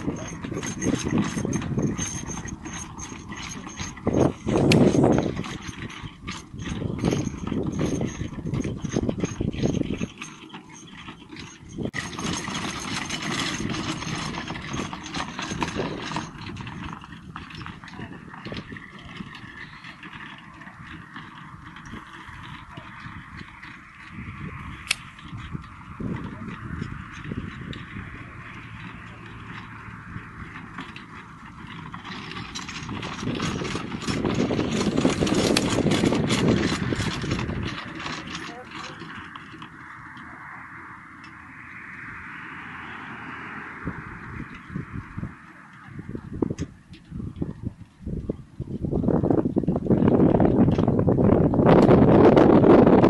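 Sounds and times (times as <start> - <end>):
horse hoofbeats: 0.0 - 40.2
carriage rattling over turf: 0.0 - 41.9.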